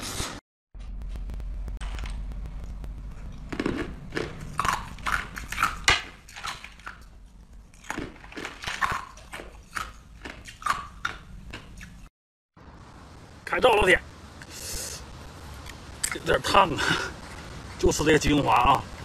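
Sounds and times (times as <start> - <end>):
crunching and chewing ice: 3.2 - 12.0.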